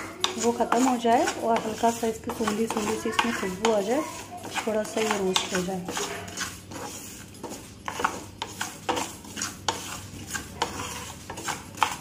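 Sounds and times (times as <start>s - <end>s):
wooden spatula scraping a pan: 0.0s - 12.0s
seeds rustling in a pan: 0.3s - 12.0s.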